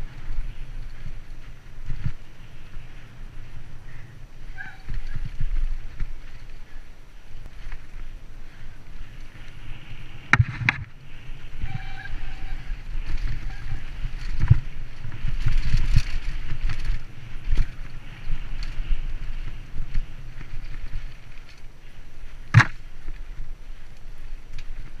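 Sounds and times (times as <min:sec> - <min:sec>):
bike tyre rumble: 0:00.0 - 0:25.0
wind rush: 0:00.0 - 0:25.0
bike clattering over rocks: 0:22.4 - 0:23.0.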